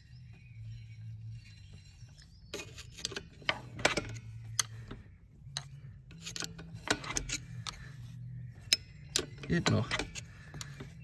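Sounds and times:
screwdriver ratcheting brake adjuster: 5.6s - 7.8s.

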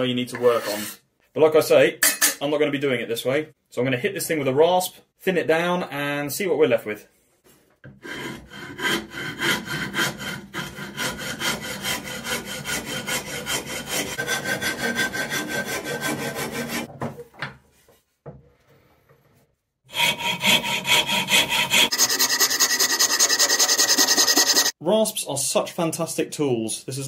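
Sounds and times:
hand rasp filing wood: 7.9s - 16.9s, 19.9s - 24.8s.

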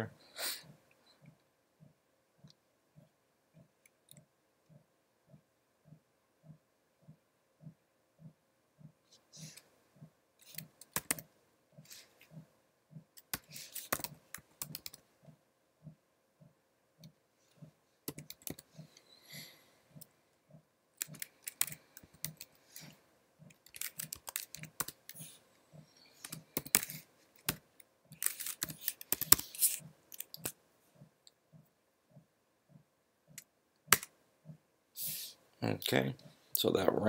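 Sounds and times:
typing on computer keyboard: 10.4s - 11.3s, 13.2s - 15.0s, 18.1s - 18.9s, 21.0s - 22.6s, 23.5s - 25.3s, 26.1s - 30.5s.

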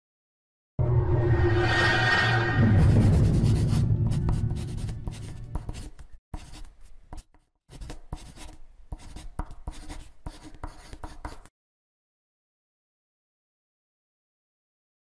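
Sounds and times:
low rumble: 0.8s - 5.3s
marker pen writing: 3.4s - 11.5s.

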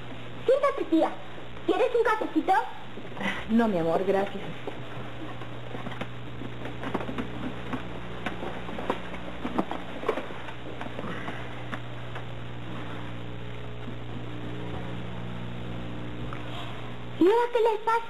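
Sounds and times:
low hum and hiss: 0.0s - 18.0s.

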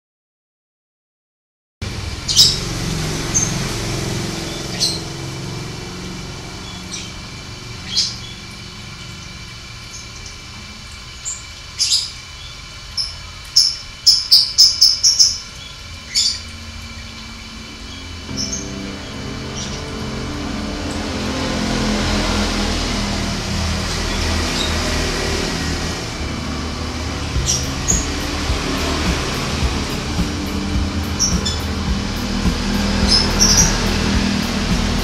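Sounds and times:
canary chirping: 2.2s - 5.6s.

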